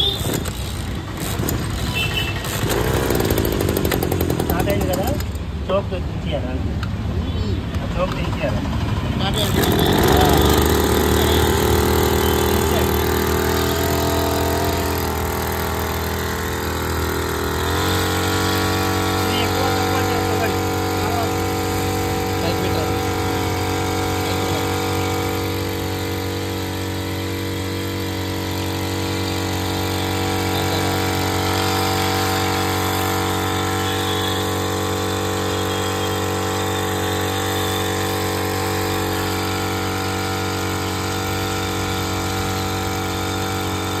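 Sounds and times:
power sprayer motor humming: 0.0s - 5.5s, 9.2s - 44.0s
water jet spraying: 9.3s - 44.0s.

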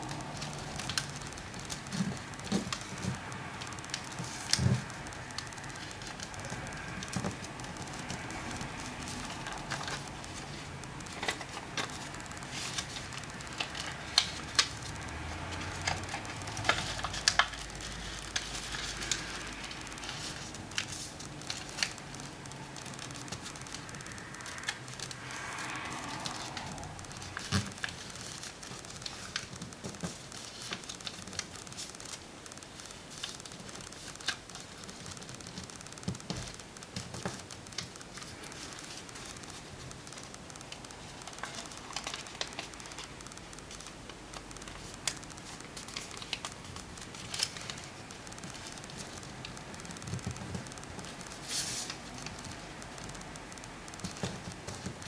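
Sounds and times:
paper crackling: 0.0s - 55.0s
paper crinkling and rustling: 0.0s - 55.0s.

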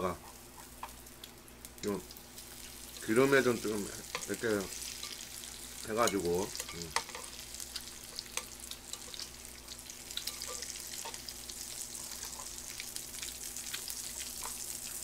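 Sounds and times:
meat sizzling on grill pan: 0.0s - 15.0s.

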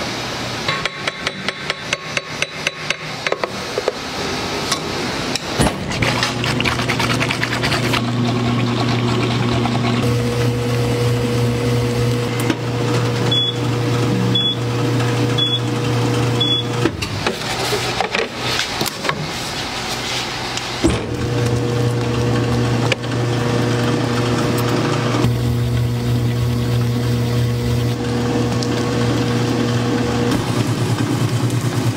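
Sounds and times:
freezer motor hum: 4.2s - 31.9s
short high beeps: 16.4s - 16.7s.

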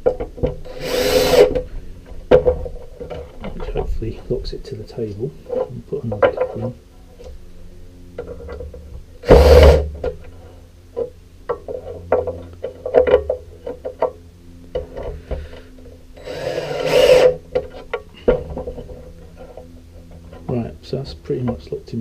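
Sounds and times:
cordless drill driving screws: 0.7s - 1.6s, 16.2s - 17.4s.

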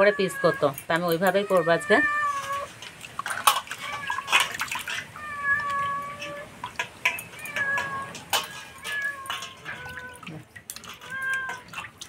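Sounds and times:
cat meowing: 0.0s - 2.8s, 3.7s - 4.5s, 5.1s - 6.6s, 7.3s - 11.8s
water splashing in metal bowl: 0.0s - 12.0s.

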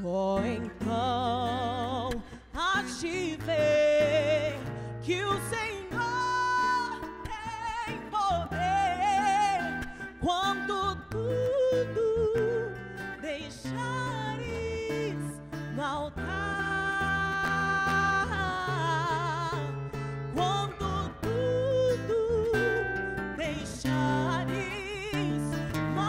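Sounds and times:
acoustic guitar: 0.0s - 26.0s
woman singing with vibrato: 0.0s - 26.0s.

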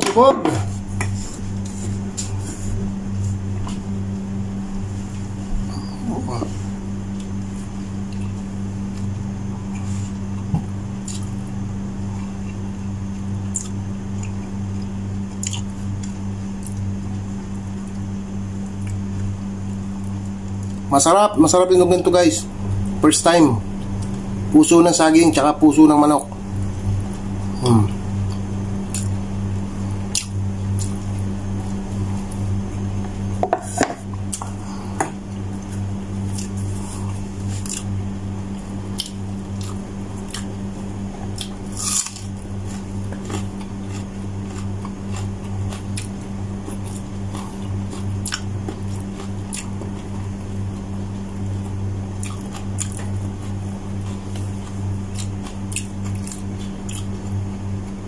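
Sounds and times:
low hum: 0.0s - 58.0s
chewing and mouth smacks: 8.1s - 9.1s, 11.0s - 11.4s, 13.4s - 16.8s, 28.2s - 29.2s, 30.1s - 32.3s, 35.3s - 37.9s, 38.9s - 40.6s, 41.2s - 50.2s, 51.6s - 57.4s.

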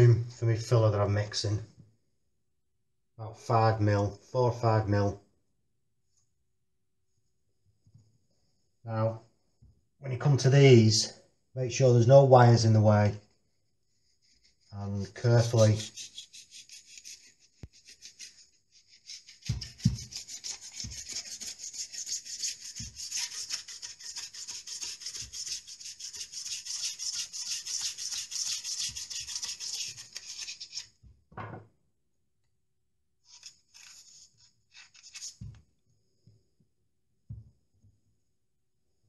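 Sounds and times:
metal scraper scraping foam: 14.3s - 30.9s.

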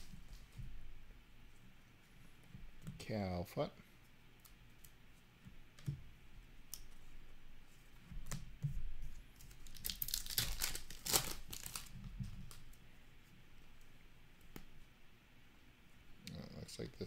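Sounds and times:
wrapper tearing and crinkling: 9.6s - 12.6s.

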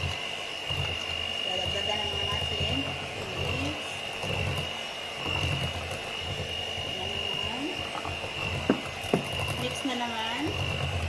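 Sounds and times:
electric hand mixer whining: 0.0s - 11.0s
sharp knocks: 8.6s - 9.4s.

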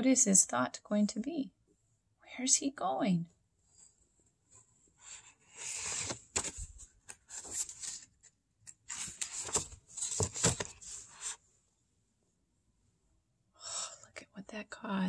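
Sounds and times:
paper pages rustling: 5.0s - 11.4s.

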